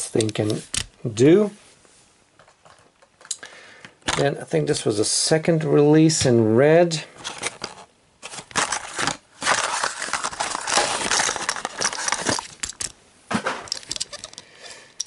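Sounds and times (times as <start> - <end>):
plastic blister pack crinkling: 7.2 - 12.9, 13.7 - 14.5.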